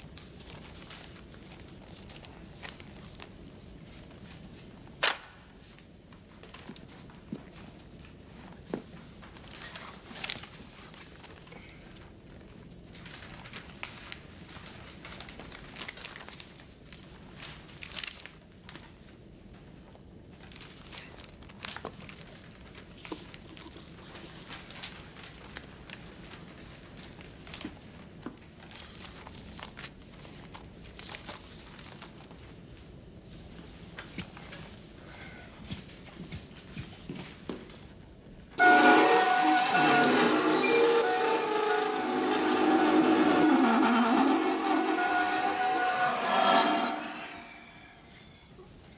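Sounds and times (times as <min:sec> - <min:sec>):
paper rustling and crinkling: 0:00.0 - 0:04.9, 0:05.6 - 0:38.0.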